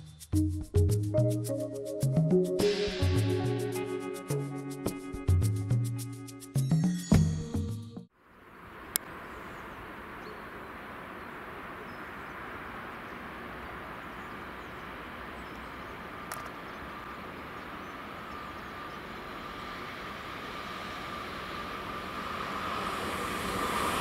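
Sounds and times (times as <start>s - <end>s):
high thin train whine: 8.5s - 24.0s
train running noise: 10.7s - 24.0s
single click: 16.3s - 16.6s.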